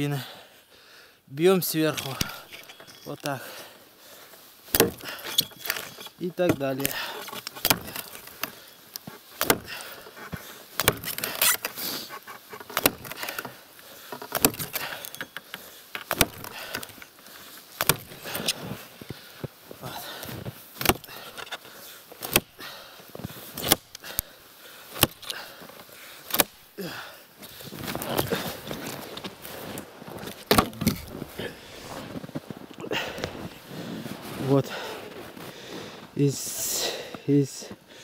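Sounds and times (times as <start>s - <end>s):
axe chopping log: 4.7s - 5.2s, 6.5s - 8.2s, 9.4s - 9.9s, 10.8s - 11.6s, 12.7s - 13.4s, 14.2s - 15.0s, 16.0s - 16.9s, 17.8s - 18.6s, 20.8s - 21.1s, 22.2s - 22.5s, 23.6s - 24.0s, 25.0s - 25.3s, 26.3s - 26.6s, 30.4s - 31.1s.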